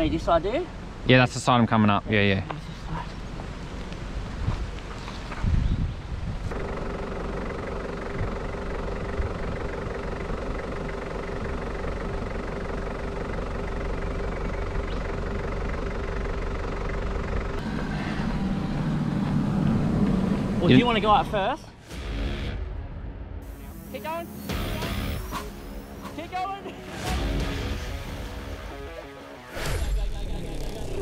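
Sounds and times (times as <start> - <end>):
car engine idling: 6.5 - 29.5.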